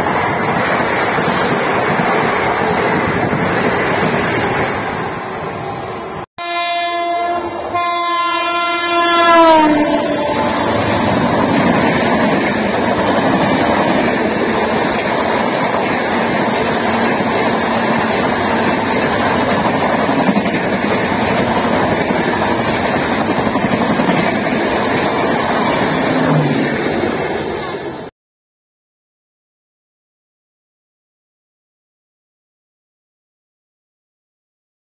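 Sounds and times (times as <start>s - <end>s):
train wheels rushing on rails: 0.0s - 6.2s, 9.3s - 28.1s
wind noise: 0.0s - 6.2s, 9.4s - 28.0s.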